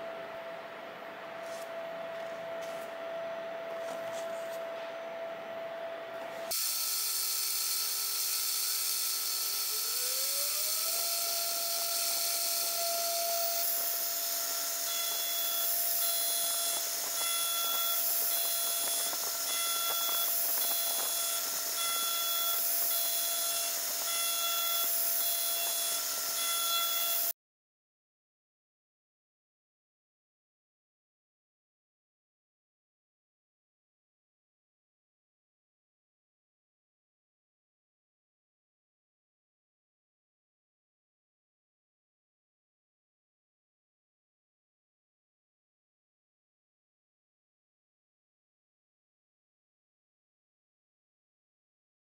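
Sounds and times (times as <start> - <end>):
cnc router spindle whining: 0.1 - 27.3.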